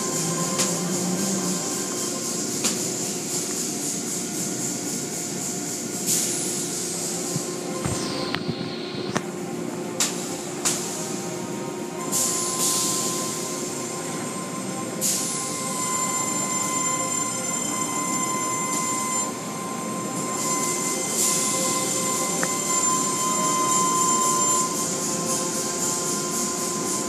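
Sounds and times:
car wash machinery whining: 0.0 - 27.0
spraying water hiss: 0.1 - 7.6.

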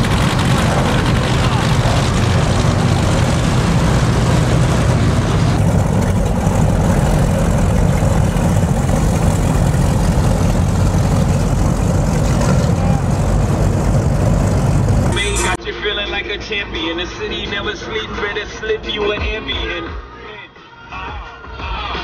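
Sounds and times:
powerboat engines idling: 0.0 - 15.6.

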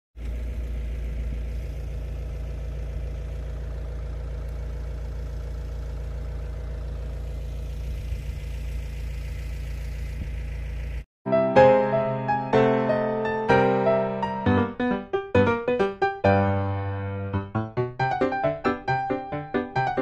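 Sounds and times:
engine idling: 0.2 - 11.1.

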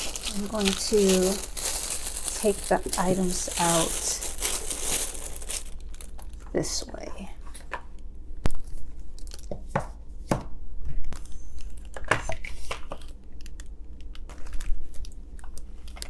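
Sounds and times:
tissue paper rustling: 0.0 - 6.2.

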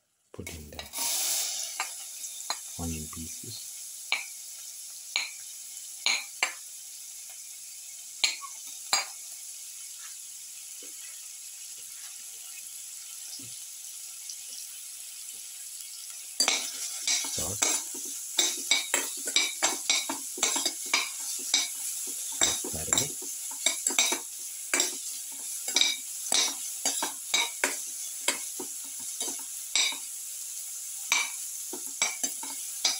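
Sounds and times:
onions sizzling in a pan: 0.0 - 32.9
utensil scraping and clinking pan: 16.4 - 28.4.

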